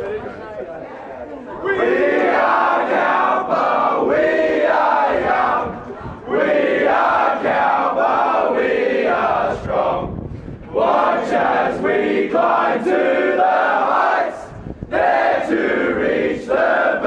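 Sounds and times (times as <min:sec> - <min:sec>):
boys chanting in unison: 0:01.7 - 0:10.1, 0:10.7 - 0:17.0.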